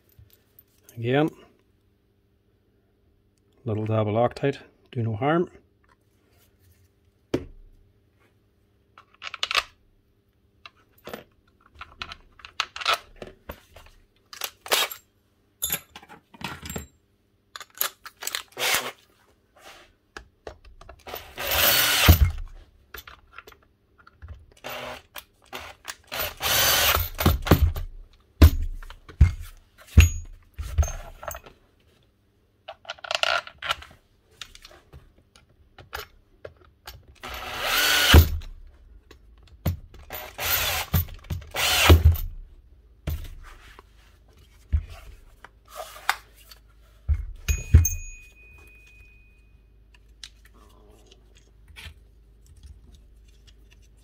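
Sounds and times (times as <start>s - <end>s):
power drill bursts: 21.1s - 22.3s, 25.6s - 27.2s, 37.2s - 38.4s, 40.2s - 42.0s.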